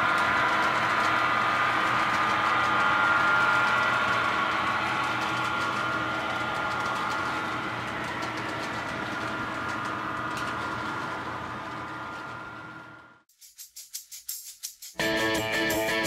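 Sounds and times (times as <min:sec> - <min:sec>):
wheels clicking over track: 0:00.0 - 0:12.3.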